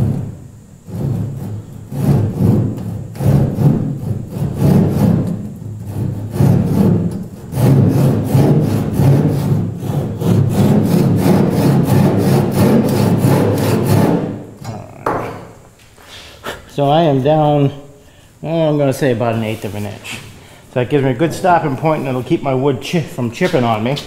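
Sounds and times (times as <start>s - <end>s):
hand saw cutting wood: 0.9s - 14.5s.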